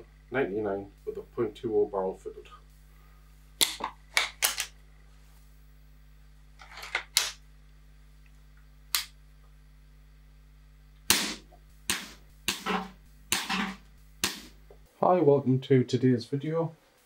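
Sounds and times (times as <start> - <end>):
air rifle shots: 11.1 - 14.6.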